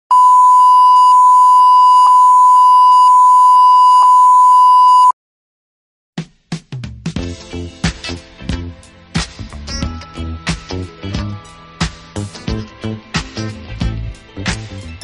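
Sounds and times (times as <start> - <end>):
music: 6.2 - 15.0.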